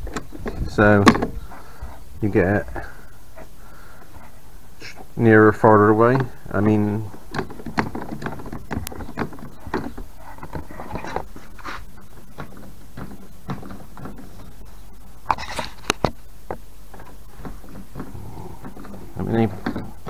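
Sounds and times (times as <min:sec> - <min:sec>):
clicks and knocks of handling gear: 0:06.1 - 0:14.5.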